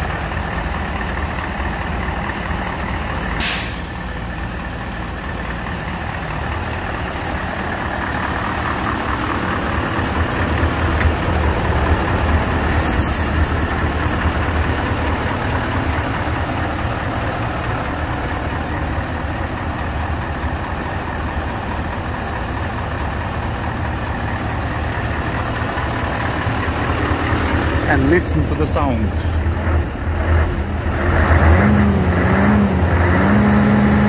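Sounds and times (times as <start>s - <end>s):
diesel truck engine running: 0.0s - 34.0s
short hiss: 3.4s - 4.1s, 12.8s - 13.6s.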